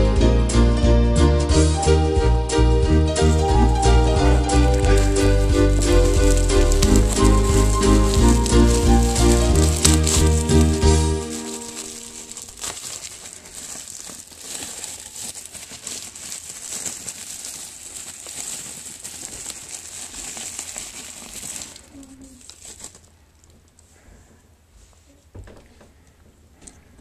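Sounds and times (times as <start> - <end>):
bubble wrap crinkling: 3.0 - 24.0.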